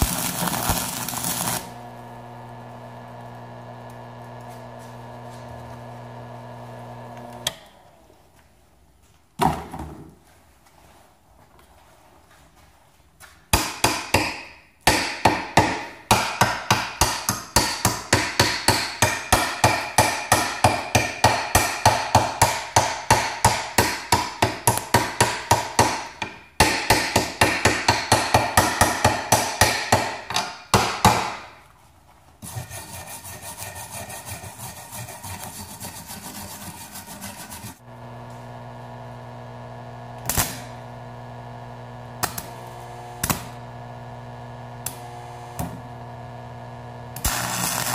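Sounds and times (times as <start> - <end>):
welding electrode crackles: 0.0 - 7.5, 40.1 - 40.9, 42.1 - 43.6, 47.2 - 47.9
stick welder humming: 0.0 - 7.9, 32.4 - 47.9
hammer strikes on steel plate: 13.6 - 31.5
steady scraping: 32.4 - 37.8.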